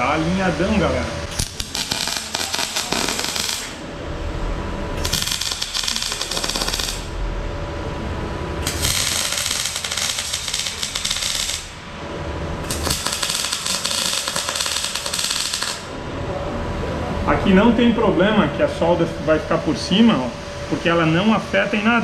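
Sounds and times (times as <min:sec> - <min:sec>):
welding arc crackling: 0:01.3 - 0:03.9, 0:05.0 - 0:07.2, 0:08.6 - 0:11.8, 0:12.6 - 0:15.9.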